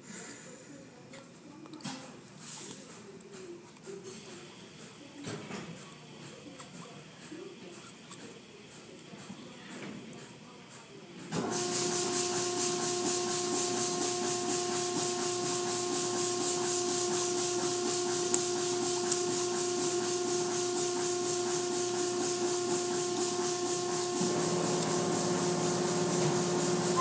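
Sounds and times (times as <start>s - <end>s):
pump motor hum: 11.3s - 27.0s
car wash spray hissing: 11.4s - 27.0s.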